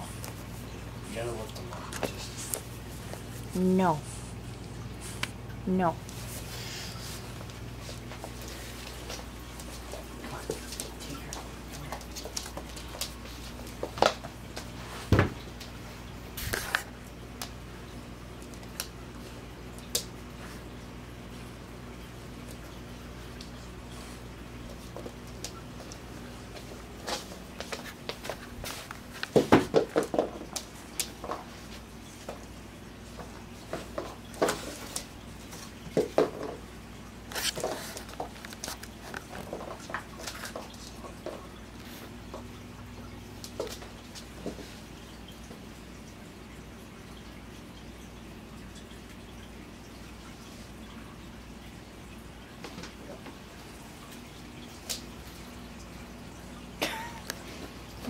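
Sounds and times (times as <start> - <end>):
puppy claws clicking on floor: 7.4 - 14.8.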